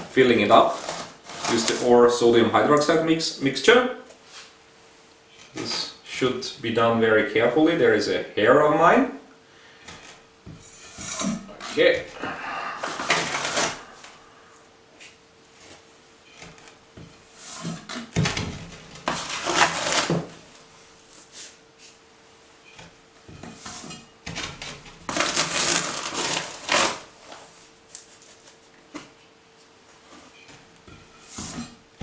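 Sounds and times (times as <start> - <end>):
plastic scoop scraping and knocking: 0.0 - 2.0, 12.8 - 13.8, 16.4 - 20.4.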